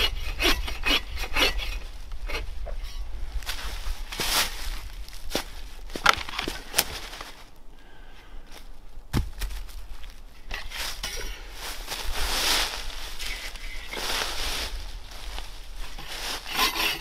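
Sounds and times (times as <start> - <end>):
saw rasping through branch: 0.0 - 3.0, 15.8 - 17.0
dry leaves crunching underfoot: 3.3 - 7.6, 8.5 - 17.0
heavy thud: 9.1 - 9.7
firewood knocking and snapping: 9.1 - 9.8.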